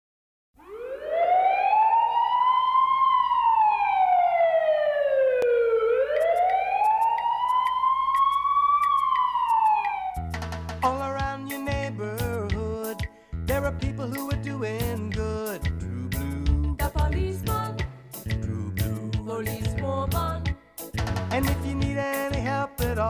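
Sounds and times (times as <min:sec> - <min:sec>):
police siren wailing: 0:00.6 - 0:10.4
music: 0:10.2 - 0:23.0.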